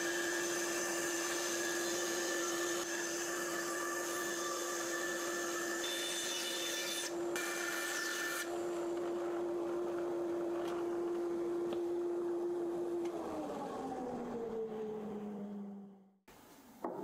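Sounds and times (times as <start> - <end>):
saw blade cutting wood: 0.0 - 8.6.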